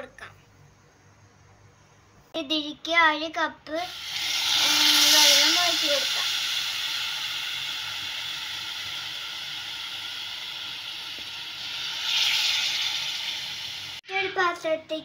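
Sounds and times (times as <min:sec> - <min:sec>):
child speaking: 0:00.0 - 0:00.4, 0:02.4 - 0:03.9, 0:04.6 - 0:06.2, 0:14.0 - 0:15.0
sugar and water hissing in pan: 0:03.8 - 0:14.0.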